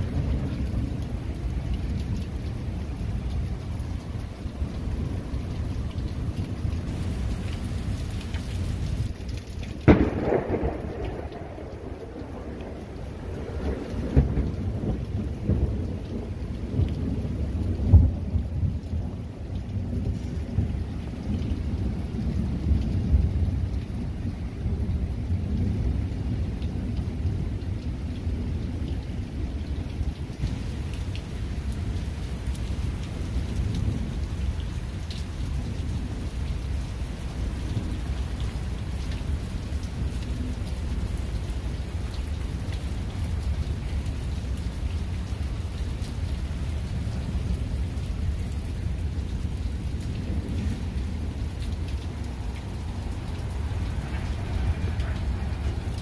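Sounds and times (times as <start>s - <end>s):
heavy rain: 0.0s - 56.0s
thunder rumbling: 8.6s - 26.4s, 30.4s - 41.2s.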